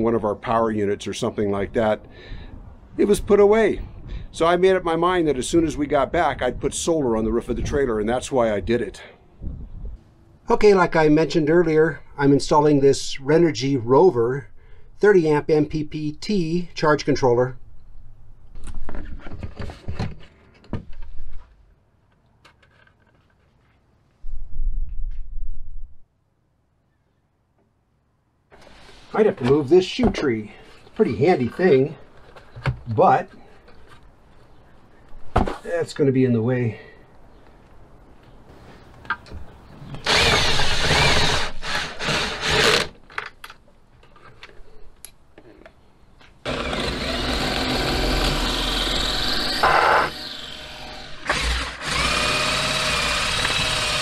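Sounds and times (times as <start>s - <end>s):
power drill running: 40.0s - 42.9s, 46.4s - 54.0s
cordless drill driving screws: 40.0s - 43.0s, 46.4s - 54.0s.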